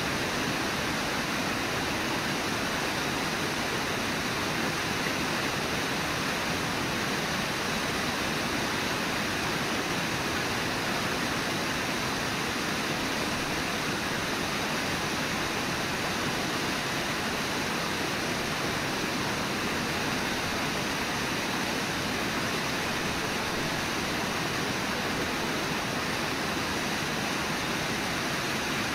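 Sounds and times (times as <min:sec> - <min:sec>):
river whitewater rushing: 0:00.0 - 0:28.9.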